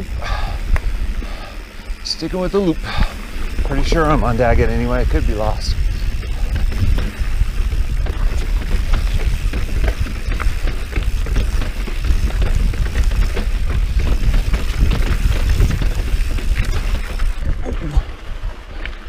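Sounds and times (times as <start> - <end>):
bike rattling over rocks: 0.0 - 19.0
wind and vibration rumble: 0.0 - 19.0.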